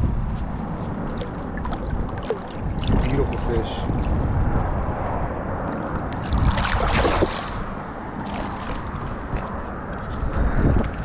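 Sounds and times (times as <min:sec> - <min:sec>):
wind rumble on microphone: 0:00.0 - 0:11.0
fish splashing in water: 0:01.0 - 0:04.3, 0:05.6 - 0:09.9.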